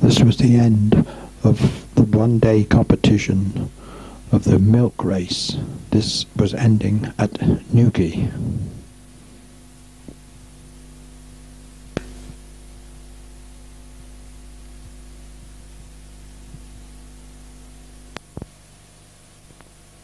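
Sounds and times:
electrical mains hum: 0.0s - 20.0s
faint hiss: 0.0s - 20.0s.

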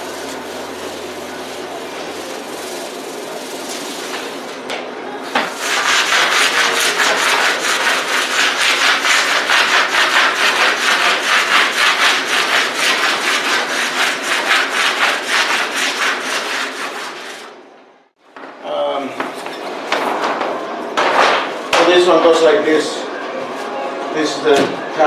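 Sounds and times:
squeegee rubbing on vinyl: 0.0s - 4.5s.

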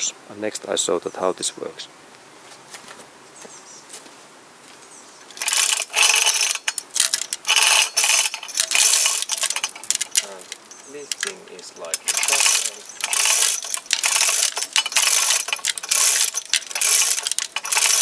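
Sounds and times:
chain rattling through hoist: 5.3s - 18.0s.

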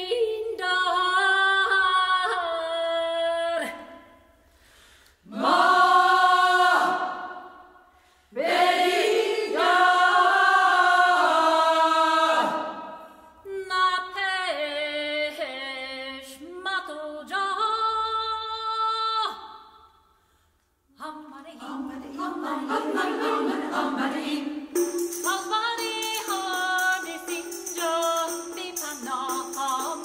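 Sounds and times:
women's choir singing: 5.2s - 13.3s, 21.1s - 30.0s.

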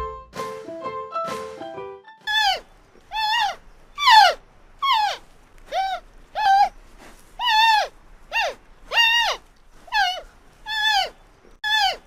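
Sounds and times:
giant panda calling: 2.2s - 6.7s, 7.4s - 12.0s.

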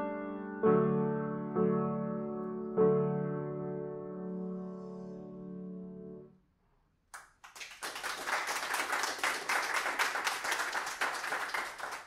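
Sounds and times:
audience applauding: 7.1s - 12.0s.

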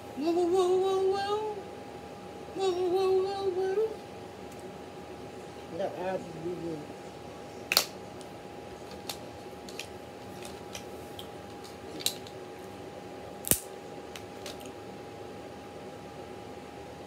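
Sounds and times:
crab shell cracking: 13.4s - 14.7s.

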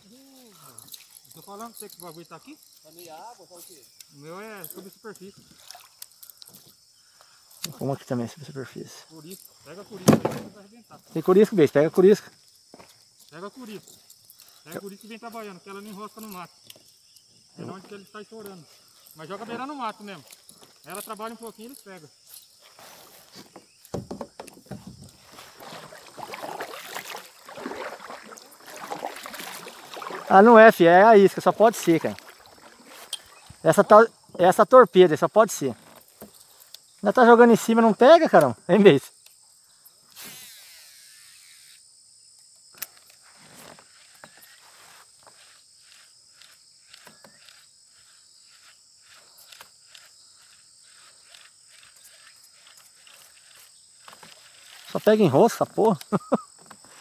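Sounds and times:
crickets and insects chirring: 0.0s - 57.0s
water splashing against kayak: 5.4s - 6.1s, 24.7s - 33.6s.

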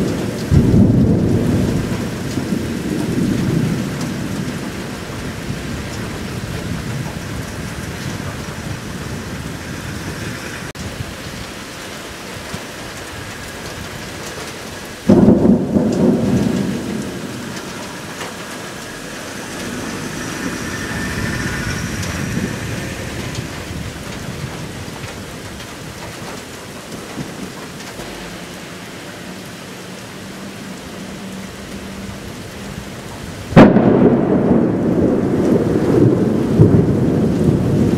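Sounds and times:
loud thunderclap: 0.0s - 11.1s, 13.7s - 28.3s, 33.4s - 37.9s
thunder rumbling: 0.0s - 30.3s, 31.4s - 37.9s
steady rain: 0.0s - 37.9s.

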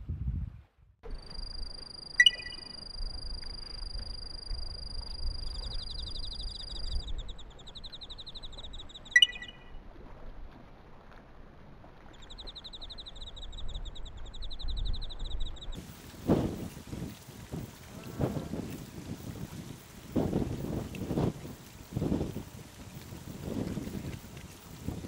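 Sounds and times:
night insects trilling: 1.1s - 9.5s
sharp insect chirp: 1.1s - 9.7s.

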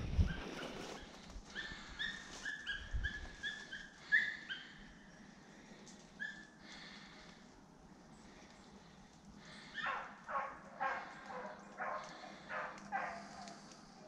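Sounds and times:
dog yelping: 1.5s - 4.7s, 9.7s - 13.4s.

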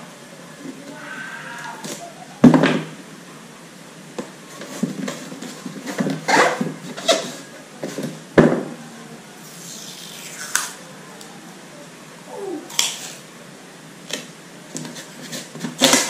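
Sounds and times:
rustles and scrapes: 4.4s - 8.2s, 14.8s - 16.0s.

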